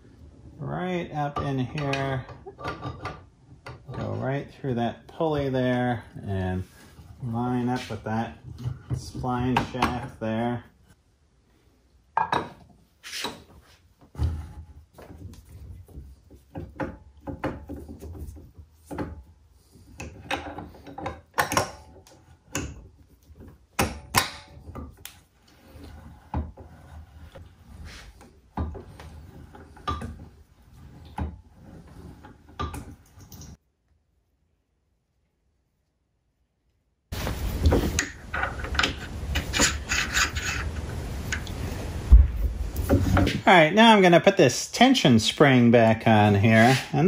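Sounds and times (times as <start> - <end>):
metal clunks clicks and scrapes: 37.7 - 41.6.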